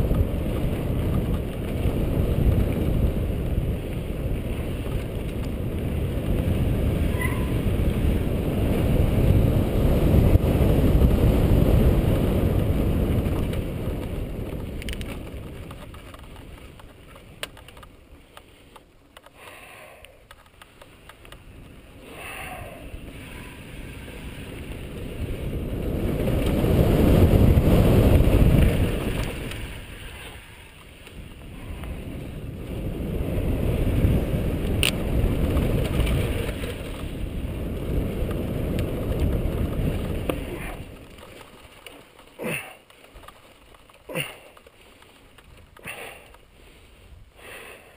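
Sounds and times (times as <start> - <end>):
wind buffeting microphone: 0.0 - 18.2, 20.2 - 47.9
bike tyres rolling over dirt: 0.0 - 47.9
light clicks and rattles: 13.2 - 19.4, 20.0 - 21.8, 38.2 - 46.5.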